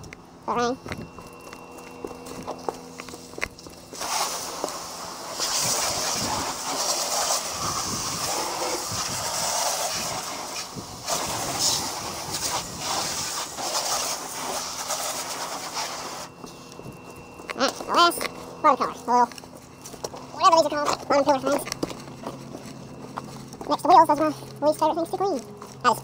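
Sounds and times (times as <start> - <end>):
hose nozzle spraying water: 3.9 - 16.3.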